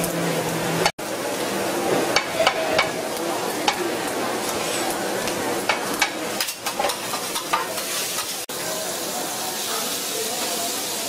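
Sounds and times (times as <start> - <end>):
food sizzling on griddle: 0.0 - 11.0
metal spatulas scraping griddle: 4.4 - 5.0.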